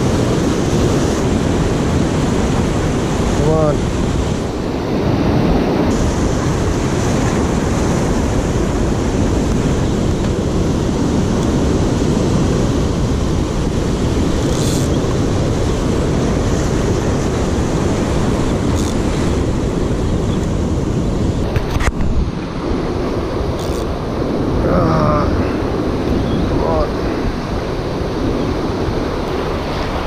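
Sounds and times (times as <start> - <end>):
surf breaking over rocks: 0.0 - 30.0
wind rumbling on microphone: 0.0 - 30.0.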